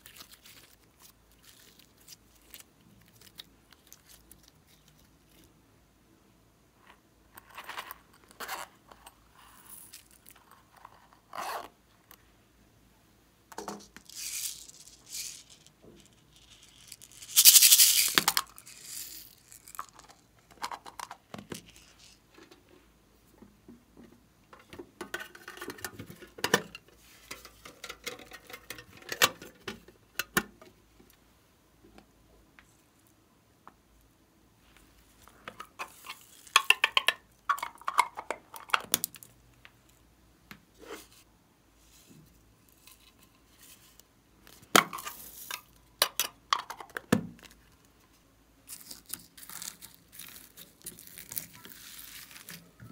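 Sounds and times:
small beads rattling and pouring: 0:14.0 - 0:20.3, 0:48.7 - 0:52.6
plastic containers clicking open: 0:36.6 - 0:39.2.

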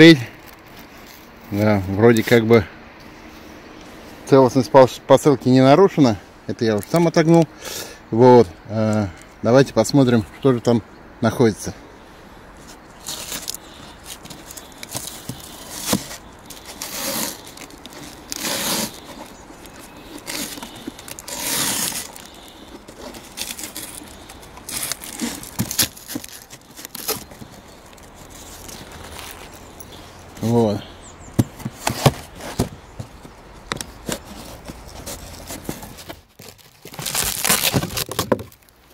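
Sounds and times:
cardboard box scraping: 0:12.6 - 0:30.6, 0:31.4 - 0:38.6
packing tape ripping: 0:13.0 - 0:29.6, 0:34.0 - 0:38.7.

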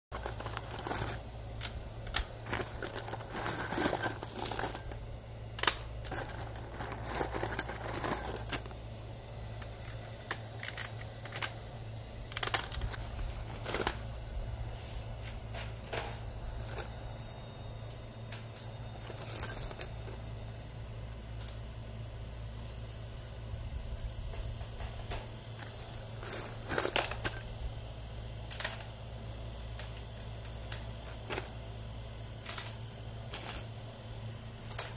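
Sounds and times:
metal screws clinking on wire mesh: 0:00.1 - 0:08.8, 0:12.3 - 0:14.1, 0:16.4 - 0:21.8, 0:24.9 - 0:27.4, 0:32.4 - 0:33.7, 0:34.6 - 0:34.9.

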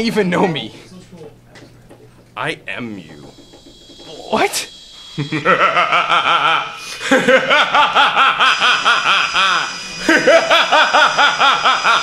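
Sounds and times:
person laughing: 0:05.2 - 0:12.0.

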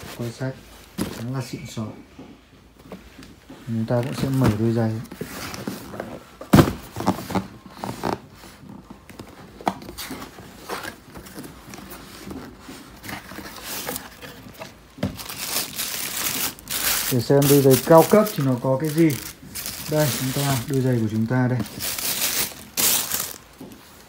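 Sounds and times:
tissue paper crinkling: 0:10.6 - 0:24.0.

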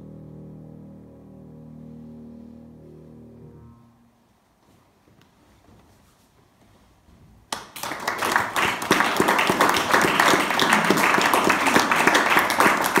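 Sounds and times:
audience applause: 0:07.5 - 0:13.0.

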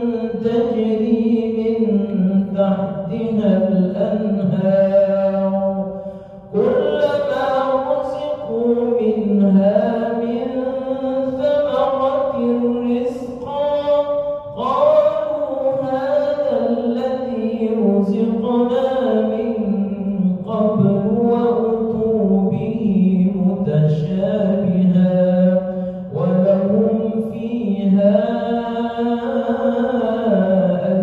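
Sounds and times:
man chanting melodically: 0:00.0 - 0:31.0.

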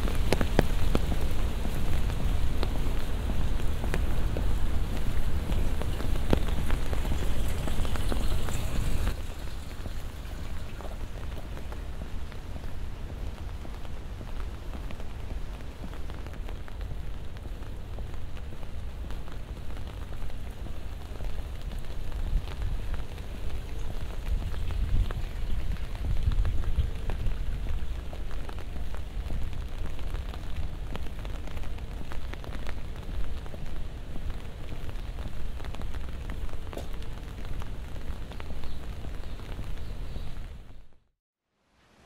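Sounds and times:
water dripping: 0:00.0 - 0:15.1
rain falling: 0:00.0 - 0:41.0.

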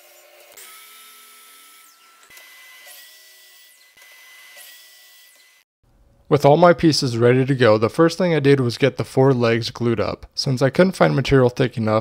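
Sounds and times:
miter saw cutting wood: 0:00.0 - 0:05.7.

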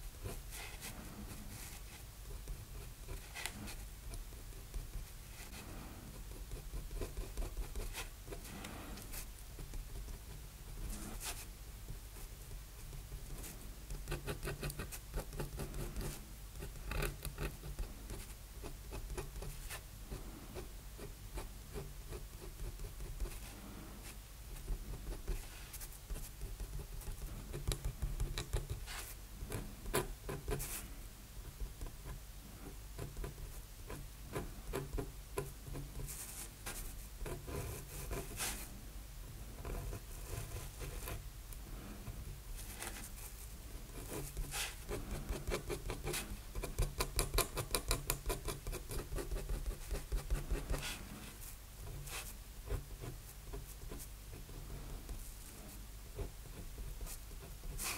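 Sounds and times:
faint low hum: 0:00.0 - 0:57.9
pen nib scratching on paper: 0:13.3 - 0:30.8, 0:33.0 - 0:38.7, 0:43.9 - 0:57.9.

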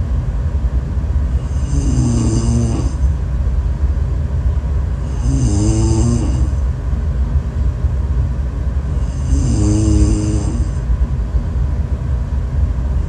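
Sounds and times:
constant low rumble: 0:00.0 - 0:13.0
person snoring: 0:01.4 - 0:03.1, 0:05.0 - 0:06.6, 0:09.0 - 0:10.8.

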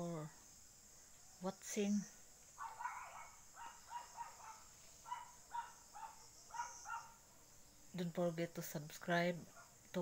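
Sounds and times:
insects chirring: 0:00.0 - 0:10.0
dog barking: 0:02.6 - 0:07.2, 0:09.5 - 0:09.8.

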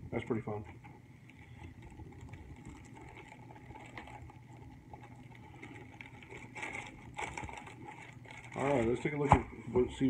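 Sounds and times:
steady low hum: 0:00.0 - 0:10.0
plastic bag crinkling: 0:01.2 - 0:09.3.

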